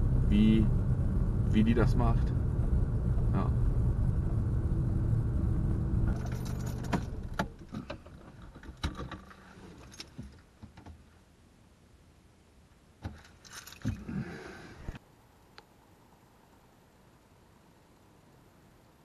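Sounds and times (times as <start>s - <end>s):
car engine and road rumble: 0.0s - 19.0s
sharp clicks and rattles: 6.1s - 11.0s.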